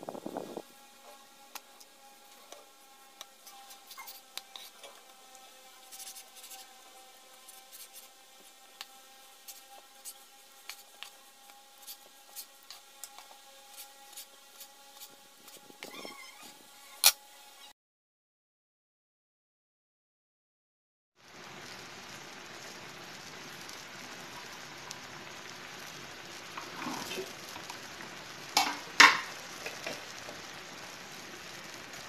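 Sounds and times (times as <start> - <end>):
faint steady hum: 0.0 - 17.7.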